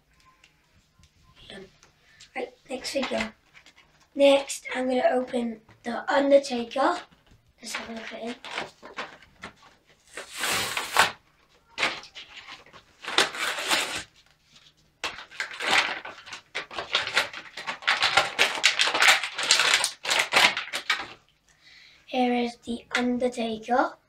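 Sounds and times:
plastic crinkling: 2.7 - 4.6, 6.8 - 21.3
cardboard box torn open: 10.2 - 11.2, 13.1 - 14.1.

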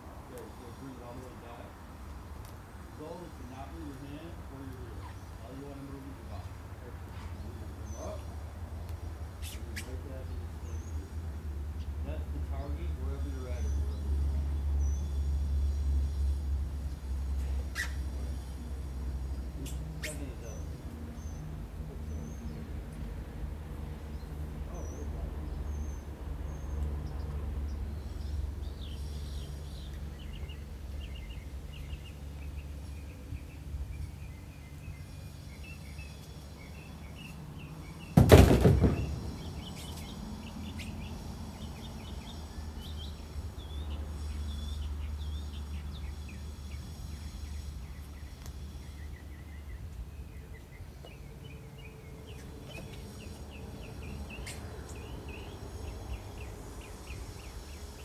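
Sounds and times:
small birds chirping: 0.3 - 58.0
loud thump: 38.2 - 39.4.

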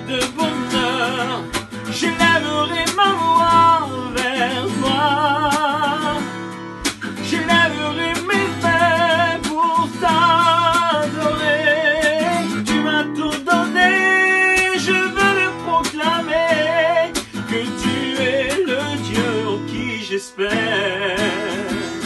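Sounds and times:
man singing with vibrato: 0.0 - 22.0
strummed acoustic guitar: 0.0 - 22.0.

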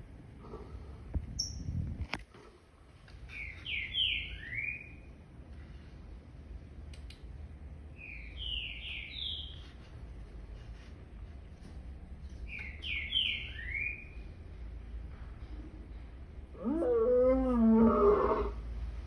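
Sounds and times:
low steady hum: 0.0 - 19.0
bird chirping: 3.3 - 5.1, 8.0 - 9.8, 12.5 - 14.3.

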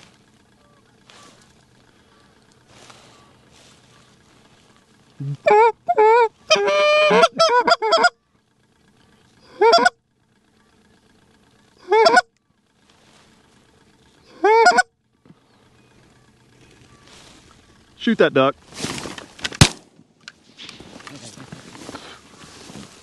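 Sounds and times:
goose honking and clucking: 0.0 - 8.2, 9.4 - 10.8, 11.8 - 12.4, 14.2 - 15.0.

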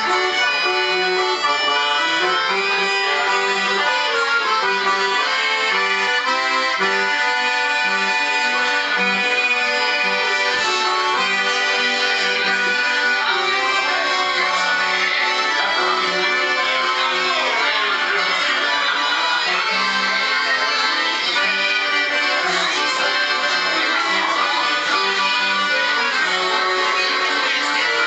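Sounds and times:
accordion playing dance tune: 0.0 - 28.0.

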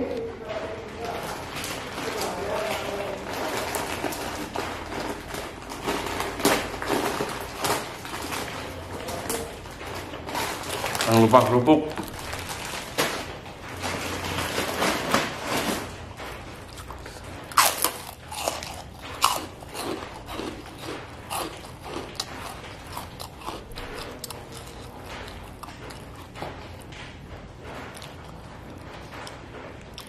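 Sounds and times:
person chewing crunchy food: 16.6 - 26.9, 27.8 - 30.0.

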